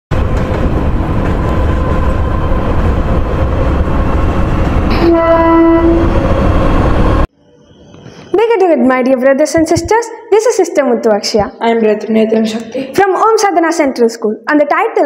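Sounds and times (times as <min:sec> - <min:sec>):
train wheels rumbling on track: 0:00.1 - 0:07.3
train horn: 0:04.9 - 0:06.6.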